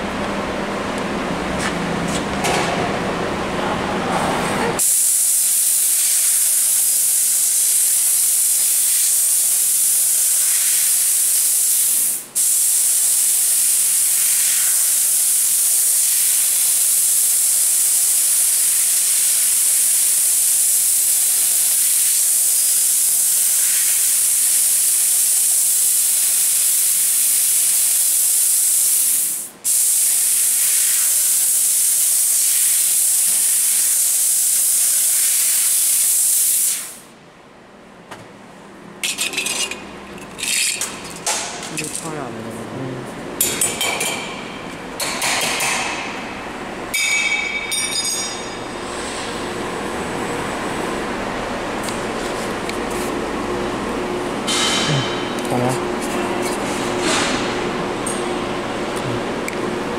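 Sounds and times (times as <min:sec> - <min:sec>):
high hiss of gas jet: 0:04.8 - 0:37.1.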